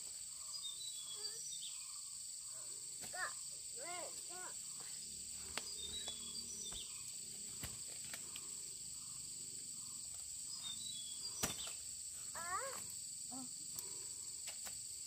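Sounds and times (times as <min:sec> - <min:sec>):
insects chirring: 0:00.0 - 0:15.0
bird chirps: 0:00.4 - 0:02.2, 0:04.7 - 0:07.2, 0:09.8 - 0:11.8.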